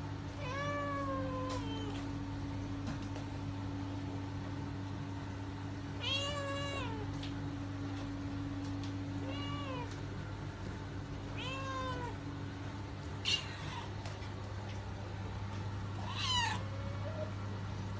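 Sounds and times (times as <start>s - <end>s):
steady low hum: 0.0s - 17.9s
kitten meowing: 16.0s - 16.6s.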